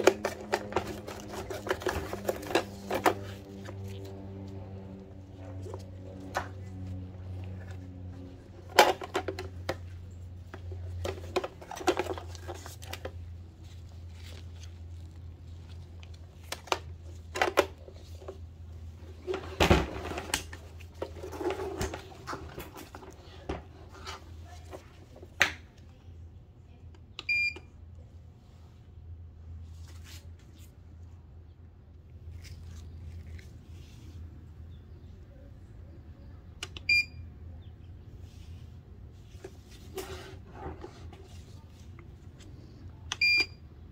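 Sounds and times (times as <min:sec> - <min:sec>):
steady low hum: 0:00.0 - 0:29.8.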